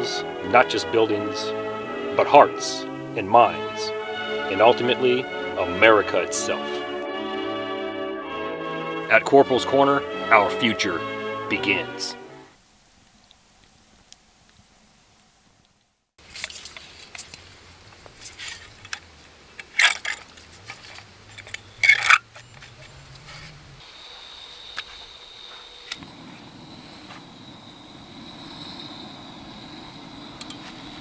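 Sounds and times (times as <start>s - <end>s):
background music: 0.0s - 12.6s
faint steady hiss: 9.0s - 31.0s
metal clicks and scrapes: 18.2s - 23.6s.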